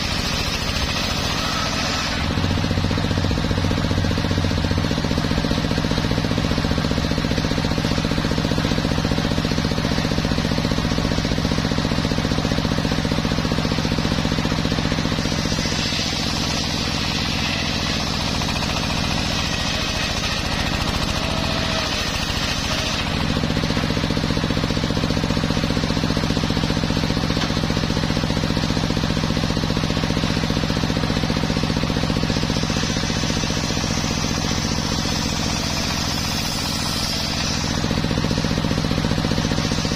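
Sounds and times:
saw blade hissing through wood: 0.0 - 3.1, 14.6 - 24.4, 30.9 - 39.9
engine running: 0.0 - 39.9.

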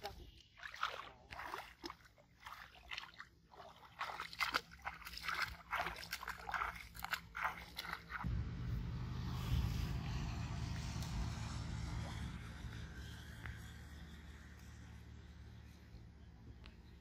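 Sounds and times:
low rumble: 8.2 - 17.0.

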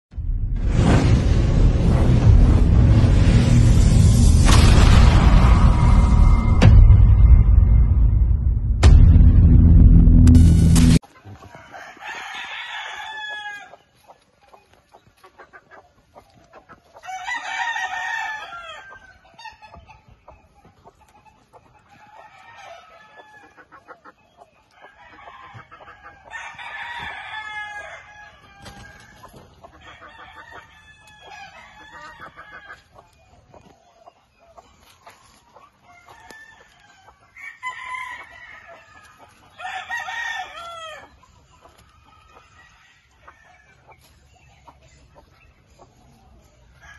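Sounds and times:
chickens clucking and calling: 11.0 - 46.9
rooster crowing: 11.2 - 13.8, 17.0 - 19.2, 24.8 - 29.2, 29.8 - 32.9, 35.9 - 41.2.

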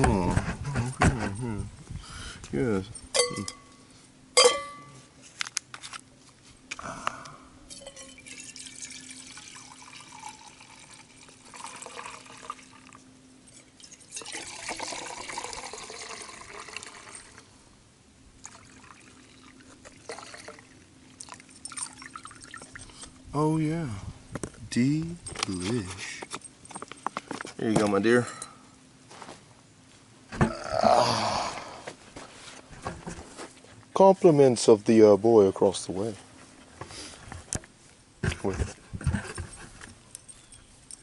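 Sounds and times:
metallic cup clink: 3.1 - 3.8, 4.4 - 5.0, 7.7 - 10.7
wine pouring and splashing: 7.7 - 13.0, 13.8 - 17.4, 18.4 - 23.0.

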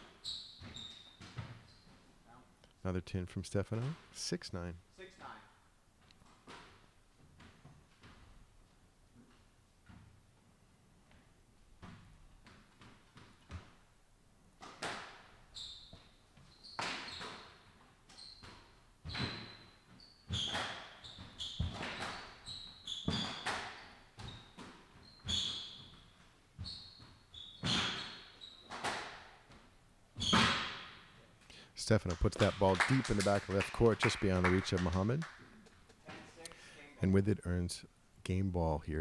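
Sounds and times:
shoes squeaking on wooden floor: 0.0 - 2.2, 15.5 - 31.3
ball smacking court walls: 0.5 - 1.7, 6.2 - 8.4, 14.6 - 31.2
squash ball hitting rackets: 14.6 - 16.0, 20.3 - 22.4, 23.0 - 26.0.

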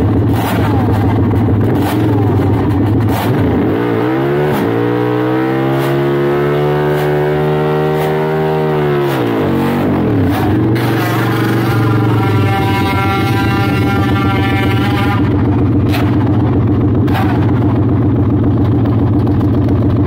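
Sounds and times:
racing engine revving: 0.0 - 20.0.

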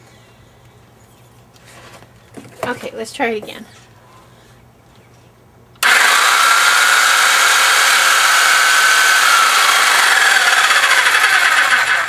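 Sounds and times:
reciprocating saw running: 5.8 - 12.0.

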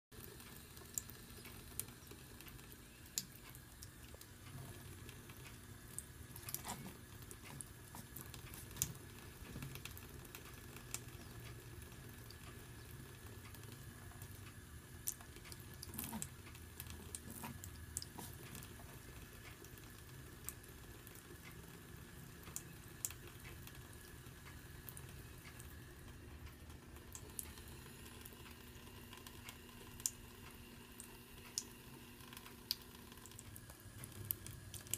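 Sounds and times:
small splashes and ticks: 0.2 - 34.9.

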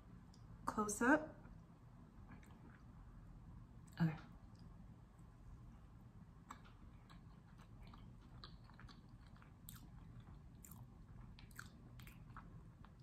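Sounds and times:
chewing with mouth closed: 6.4 - 13.0.

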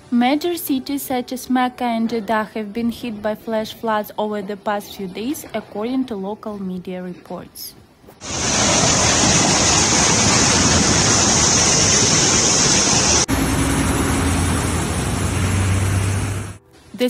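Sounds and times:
cars splashing through water: 8.2 - 16.6
floodwater rushing: 8.2 - 16.6
low engine hum: 8.4 - 16.6.

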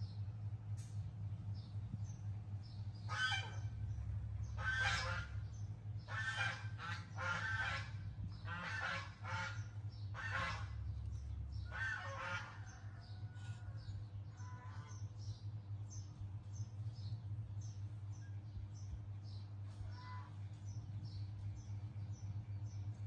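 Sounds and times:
loud harsh animal calls: 11.7 - 13.5.

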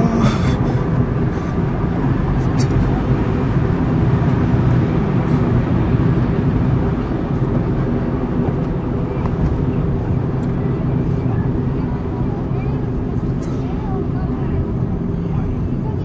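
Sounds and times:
car engine drone: 0.0 - 16.0.

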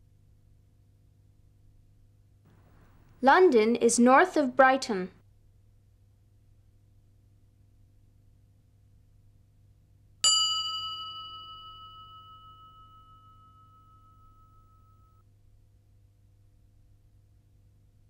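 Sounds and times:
bell-like ding: 10.2 - 15.2.

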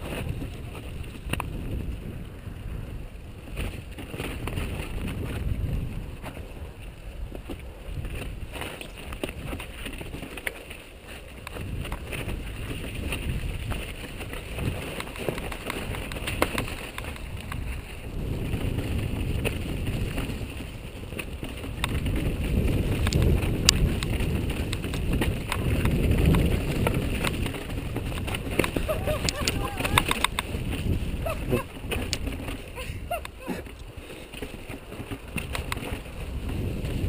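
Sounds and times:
bike tyres rumbling on rocks: 0.0 - 37.0
wind buffeting microphone: 0.0 - 37.0
chain and frame rattling: 26.3 - 33.5.

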